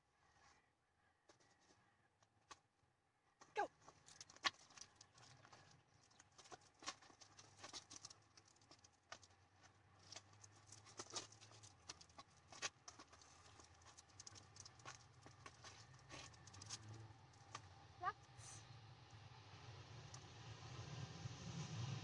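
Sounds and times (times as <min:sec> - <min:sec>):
dog paws tapping on asphalt: 0:03.4 - 0:17.8
low outdoor rumble: 0:03.8 - 0:22.0
lure dragging along road: 0:03.9 - 0:17.7.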